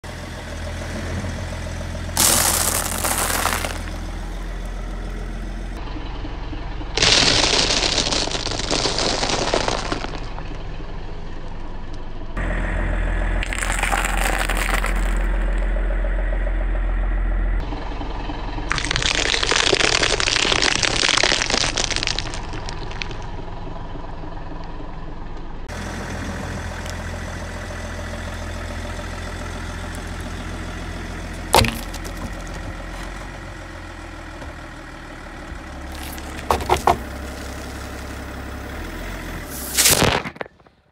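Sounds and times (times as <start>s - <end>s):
car engine idling: 0.0s - 39.8s
tyre crushing objects: 2.2s - 4.0s, 13.4s - 15.4s, 31.5s - 33.4s, 35.9s - 38.0s, 39.6s - 40.7s.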